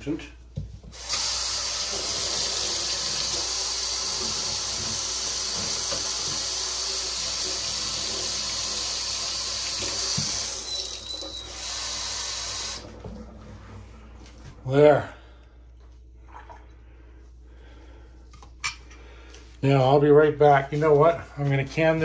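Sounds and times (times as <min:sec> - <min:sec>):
tap water running into container: 0:00.8 - 0:14.6.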